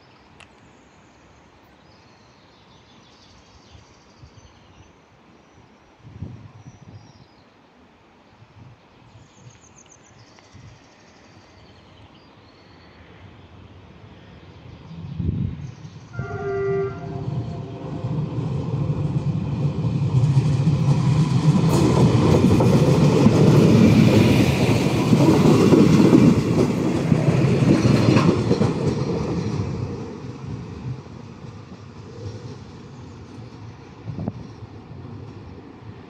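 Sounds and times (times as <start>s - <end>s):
train running noise: 13.8s - 36.0s
train horn blast: 16.1s - 18.2s.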